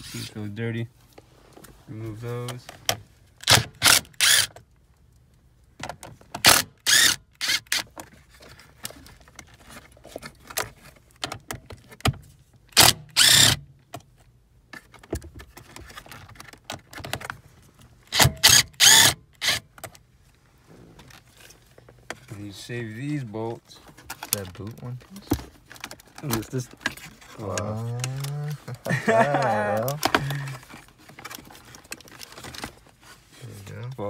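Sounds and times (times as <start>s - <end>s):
impact driver bursts: 3.4s - 4.6s, 6.4s - 7.8s, 12.8s - 13.6s, 18.1s - 19.6s.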